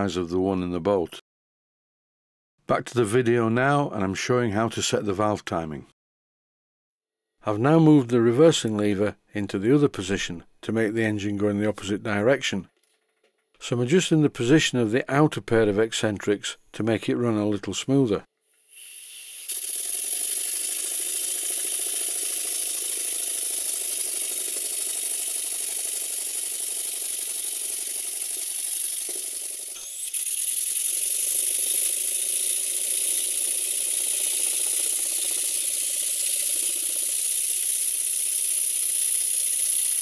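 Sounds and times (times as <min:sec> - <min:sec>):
model engine clattering: 0:19.8 - 0:29.7.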